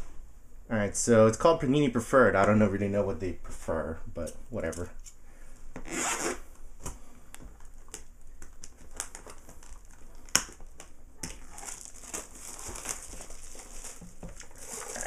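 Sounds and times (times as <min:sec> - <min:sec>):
plastic shrink wrap crinkling: 0:07.5 - 0:15.0.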